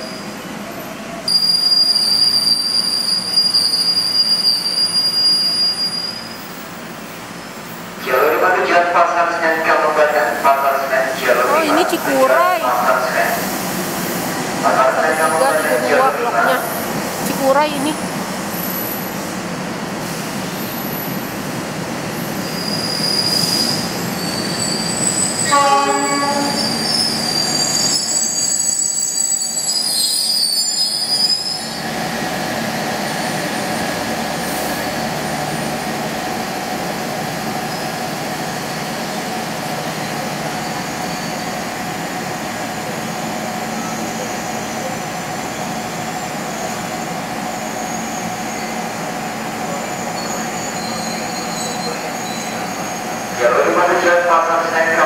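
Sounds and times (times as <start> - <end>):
steel wheel squeal: 1.3 - 6.4, 22.4 - 25.5, 26.4 - 31.8, 49.8 - 53.3
train running noise: 6.2 - 55.0
train horn blast: 25.4 - 26.8.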